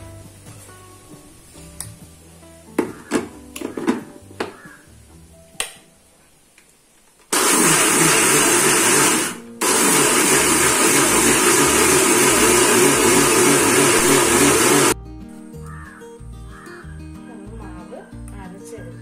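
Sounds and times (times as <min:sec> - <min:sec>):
mixer grinder running: 0:07.3 - 0:15.0.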